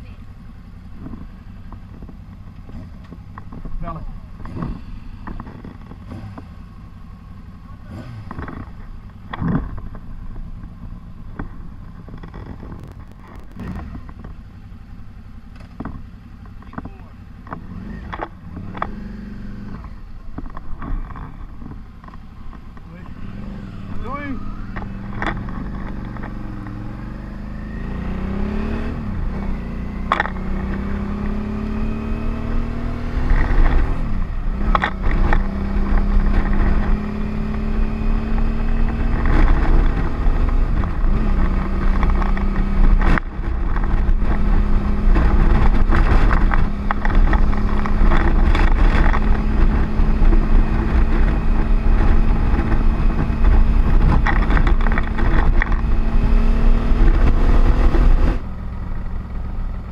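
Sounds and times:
motorcycle engine accelerating: 0:00.0 - 0:59.9
wind rush on microphone: 0:30.6 - 0:59.2.

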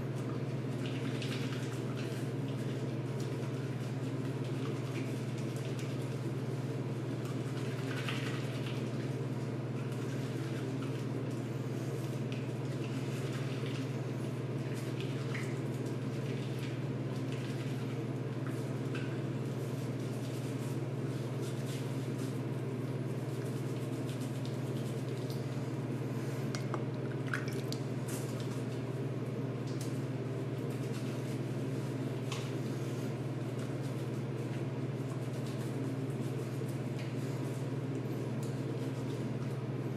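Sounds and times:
shower water running: 0:00.2 - 0:26.3
hands rubbing wet skin: 0:14.7 - 0:39.6.

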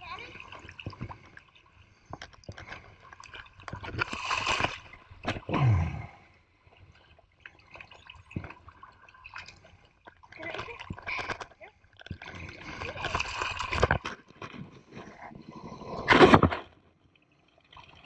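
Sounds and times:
water dripping: 0:00.0 - 0:14.6, 0:17.0 - 0:18.0
water splashing: 0:00.0 - 0:14.9
water streaming through mesh: 0:00.0 - 0:15.0.

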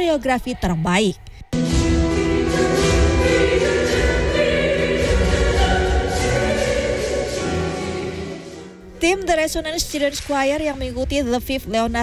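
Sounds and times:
children's choir singing: 0:01.8 - 0:08.8.

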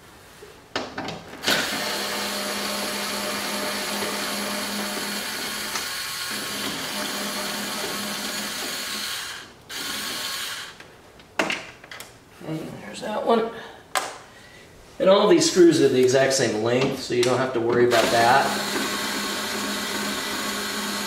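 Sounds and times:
cordless power screwdriver running: 0:01.4 - 0:10.8, 0:17.9 - 0:21.0.

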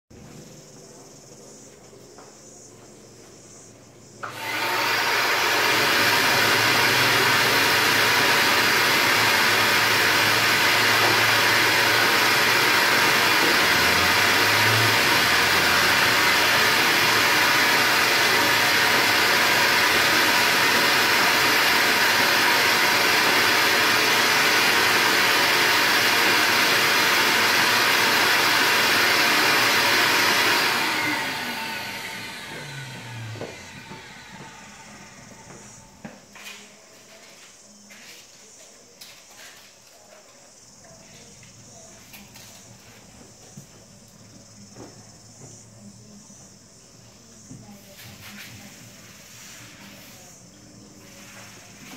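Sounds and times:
shop vacuum running: 0:04.2 - 0:37.4, 0:47.5 - 0:51.9.

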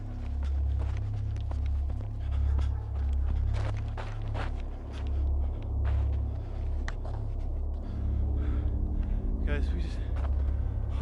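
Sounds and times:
footsteps running through woods: 0:00.0 - 0:07.5.

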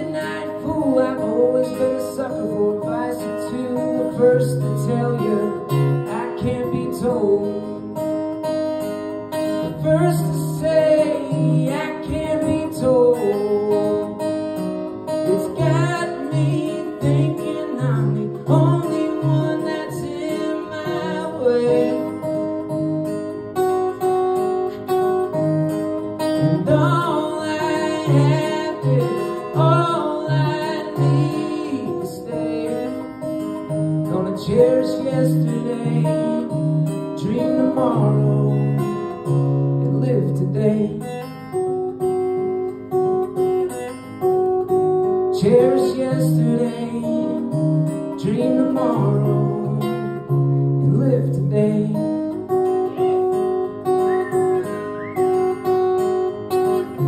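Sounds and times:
man singing: 0:00.0 - 0:08.2, 0:09.4 - 0:14.4, 0:15.1 - 0:22.6, 0:26.2 - 0:41.2, 0:45.2 - 0:53.4
acoustic guitar strummed and picked: 0:00.0 - 0:57.0.

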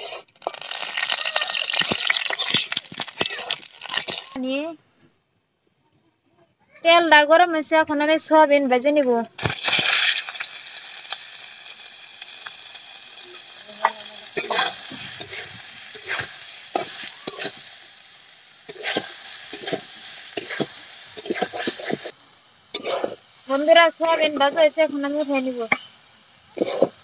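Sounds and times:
food sizzling in hot oil: 0:00.0 - 0:04.4, 0:09.4 - 0:27.0
metal spatula scraping pan: 0:13.8 - 0:17.6, 0:18.7 - 0:22.1, 0:22.7 - 0:23.2, 0:26.6 - 0:27.0.

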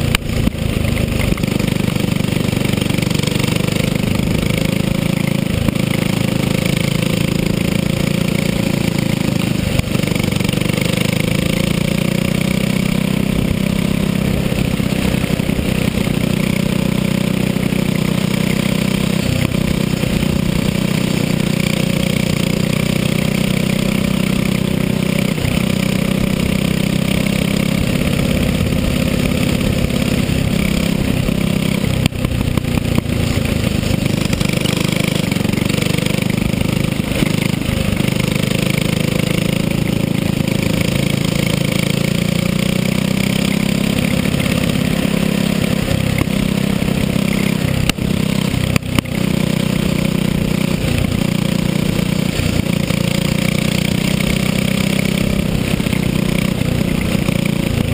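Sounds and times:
go-kart engine running hard: 0:00.0 - 0:57.9.

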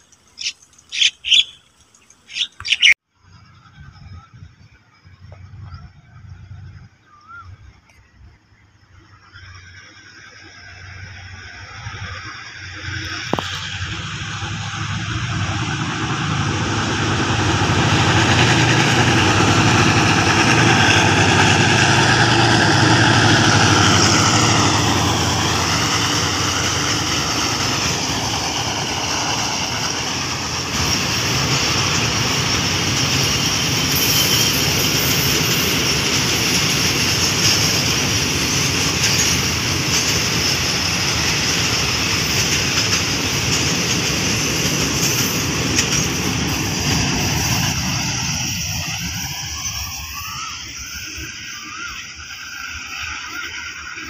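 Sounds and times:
diesel locomotive engine: 0:00.0 - 0:54.0
train wheels rumbling on rail: 0:00.0 - 0:54.0
train wheel clicks: 0:17.4 - 0:50.0.

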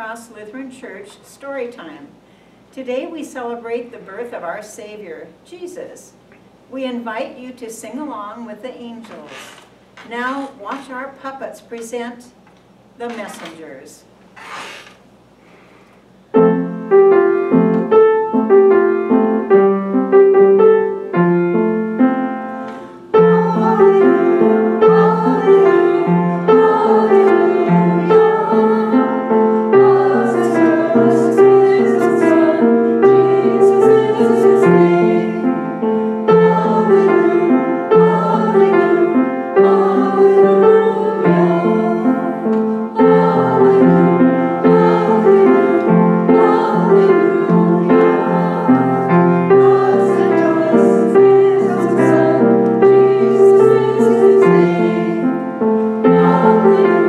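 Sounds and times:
piano music: 0:16.3 - 0:57.0.

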